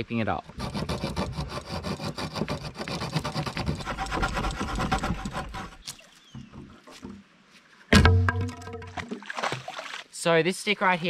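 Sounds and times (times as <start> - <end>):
knife sawing into sapling: 0.5 - 5.9
faint knocks: 6.3 - 7.2.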